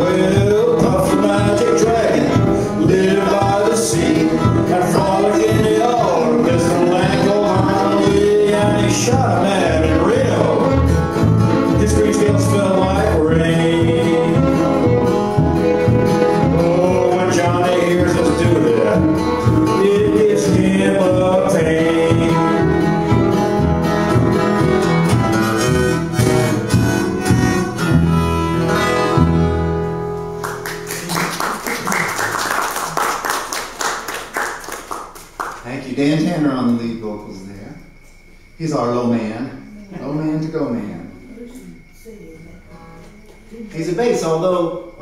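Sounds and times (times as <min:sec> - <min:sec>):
acoustic string band playing country: 0:00.0 - 0:31.5
people clapping: 0:30.4 - 0:36.0.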